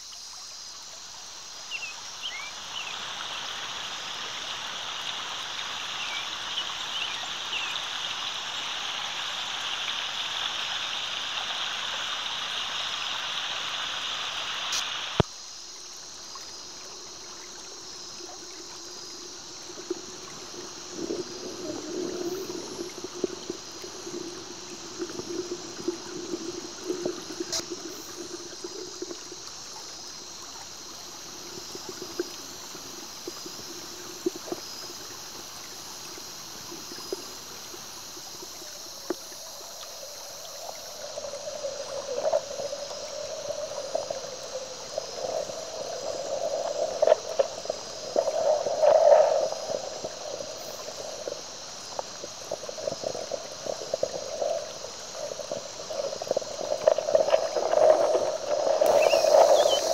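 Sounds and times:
creek water flowing over rocks: 0:00.0 - 0:59.9
low underwater hum: 0:00.3 - 0:59.9
underwater crackles and knocks: 0:18.2 - 0:30.4, 0:31.3 - 0:35.1, 0:36.7 - 0:59.9.

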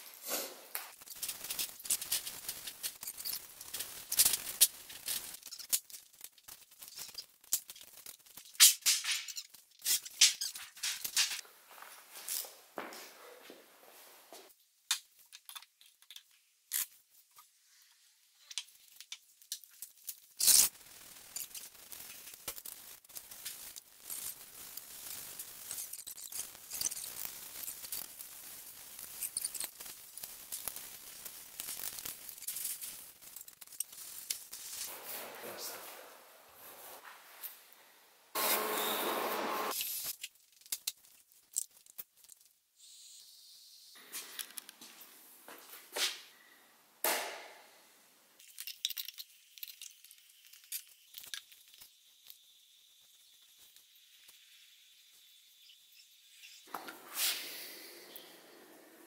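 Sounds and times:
paint roller hissing and clicking: 0:00.0 - 0:11.4, 0:18.4 - 0:37.4, 0:56.3 - 0:59.0.

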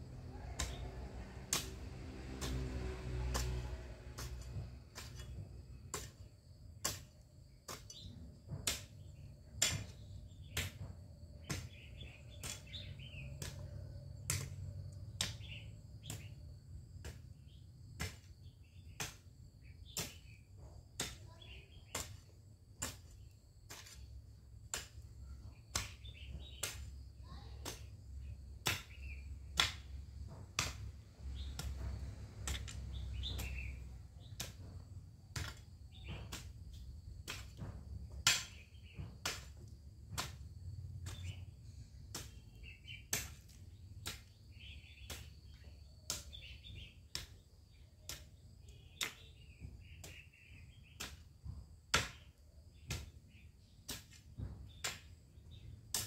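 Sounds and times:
hoe chopping dry soil: 0:00.0 - 0:56.0
birds chirping: 0:07.8 - 0:16.5, 0:18.4 - 0:22.2, 0:25.2 - 0:39.4, 0:40.2 - 0:56.0.

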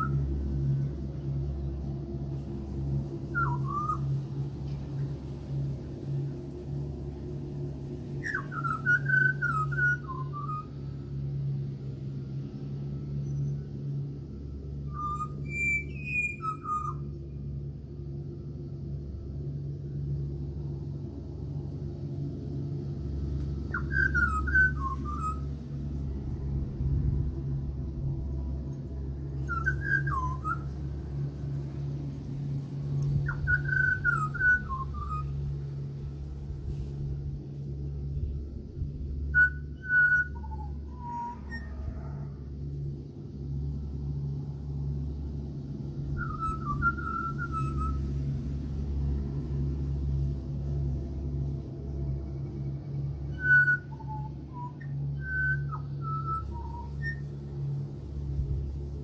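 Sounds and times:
steady low hum: 0:00.0 - 0:59.0
bird whistling fluty phrases: 0:03.3 - 0:04.1, 0:08.2 - 0:10.7, 0:14.9 - 0:17.0, 0:23.7 - 0:25.5, 0:29.4 - 0:30.7, 0:33.2 - 0:35.4, 0:39.3 - 0:42.0, 0:46.2 - 0:48.0, 0:53.3 - 0:57.3.

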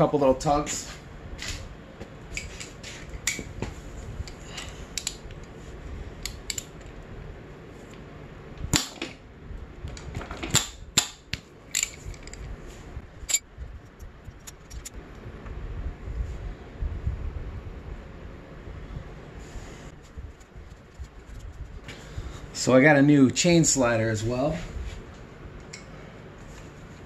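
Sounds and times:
socket wrench clicking: 0:06.2 - 0:06.7, 0:11.7 - 0:12.4
metal sprocket clanks: 0:11.7 - 0:12.4.

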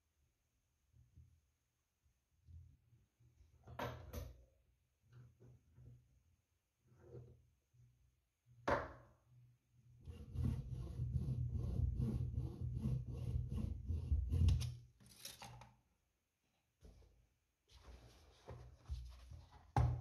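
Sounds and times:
knock: 0:08.6 - 0:09.0
hand saw cutting wood: 0:10.0 - 0:14.7.

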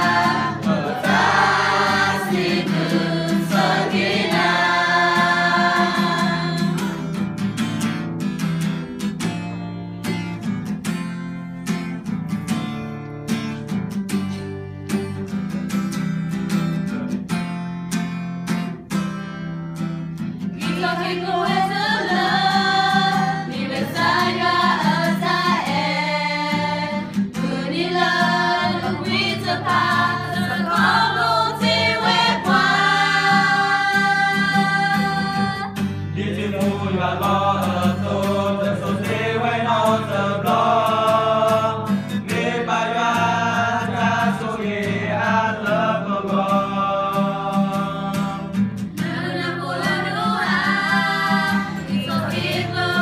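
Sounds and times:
young voices singing together: 0:00.0 - 0:07.2, 0:20.6 - 0:53.0
strummed acoustic guitar: 0:00.0 - 0:53.0.

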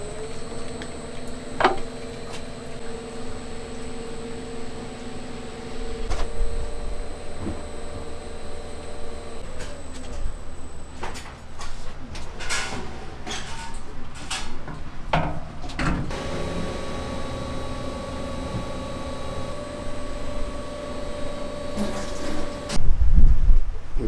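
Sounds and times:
machine motor hum with whine: 0:00.0 - 0:11.8, 0:16.1 - 0:22.8.

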